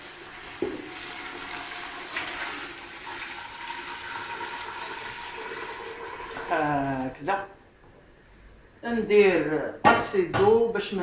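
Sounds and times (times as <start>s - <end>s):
water pouring into a pot: 0.0s - 6.6s.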